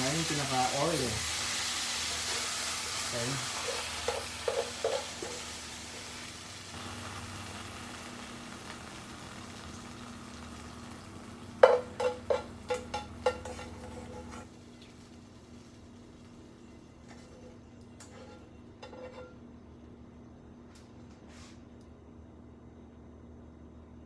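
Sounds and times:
spinach sizzling in oil: 0.0 - 17.2
tongs tapping a pan: 3.6 - 5.5, 11.6 - 14.4.

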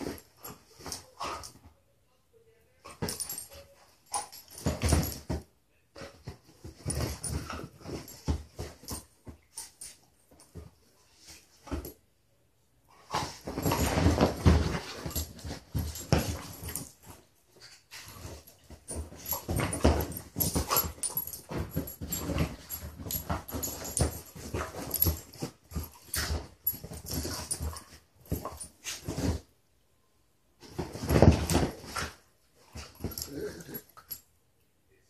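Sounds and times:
dogs play growling and snarling: 13.0 - 17.0, 30.8 - 34.2
thumps on couch cushions: 13.1 - 17.2, 18.0 - 29.5, 30.6 - 32.2.

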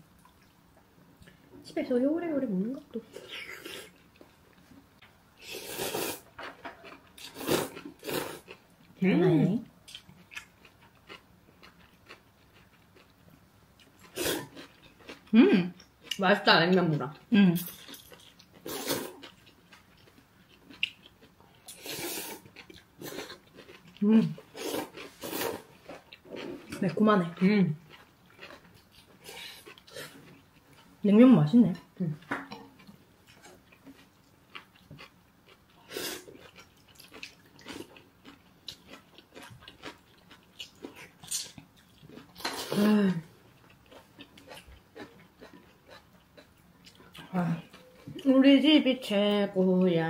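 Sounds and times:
slurping noodles: 5.4 - 6.3, 7.2 - 8.4, 24.5 - 25.7
chewing: 9.9 - 16.2, 17.6 - 31.0, 32.2 - 42.8, 43.4 - 48.3.

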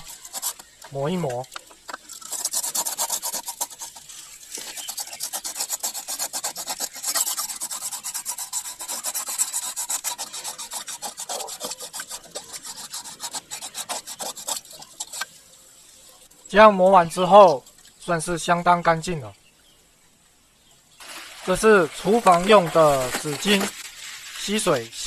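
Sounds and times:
sandpaper rasping in plastic fitting: 0.0 - 0.8, 2.1 - 15.3, 21.9 - 24.5.

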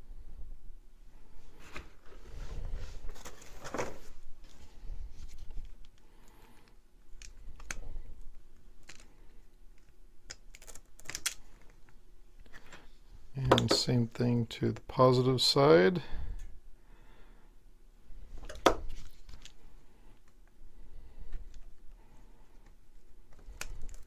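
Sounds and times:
wires rustling: 1.4 - 13.9.

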